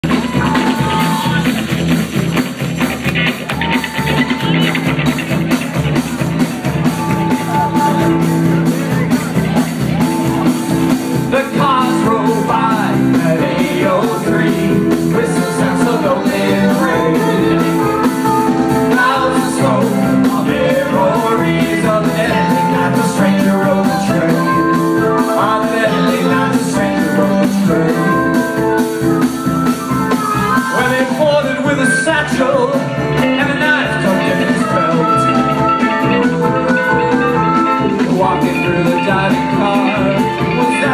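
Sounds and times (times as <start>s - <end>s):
drum kit: 0.0s - 40.9s
electric guitar: 0.0s - 40.9s
keyboard: 0.0s - 40.9s
person singing into microphone: 11.2s - 29.0s, 30.2s - 40.9s.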